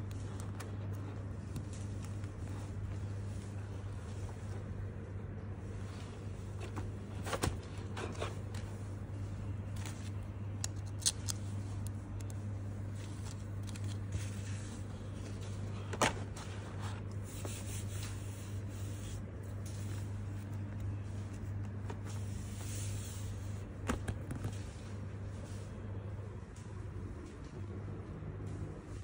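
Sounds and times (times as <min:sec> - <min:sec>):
steady low hum: 0:00.0 - 0:29.0
plastic and paper rustling: 0:05.8 - 0:25.6.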